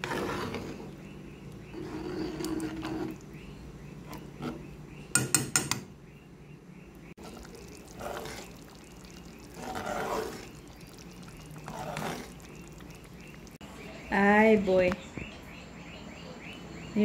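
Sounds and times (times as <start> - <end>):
wet swishes of stirring sauce: 0.0 - 3.4, 7.2 - 13.6.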